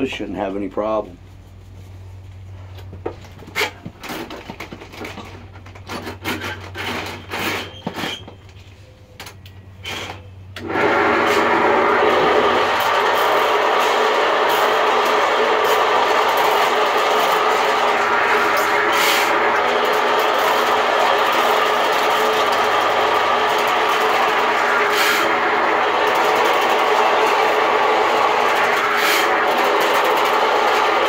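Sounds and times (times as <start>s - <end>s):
sewer machine running: 9.9s - 31.0s.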